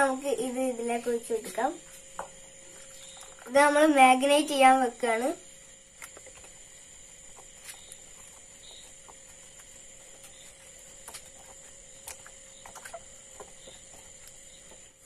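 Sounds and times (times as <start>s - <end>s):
faint high hum: 0.0s - 15.0s
potato slices squelching in bowl: 6.0s - 15.0s.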